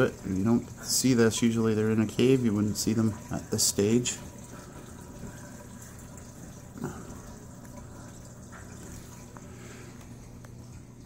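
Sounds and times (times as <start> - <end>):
low steady hum: 0.0 - 11.0
water running through aquarium filter: 0.0 - 11.0.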